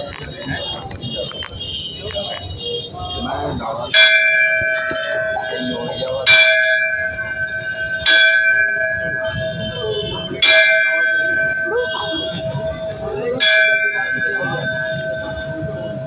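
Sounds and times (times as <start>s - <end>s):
murmur of crowd voices: 0.0s - 16.0s
temple bell ringing: 3.2s - 16.0s.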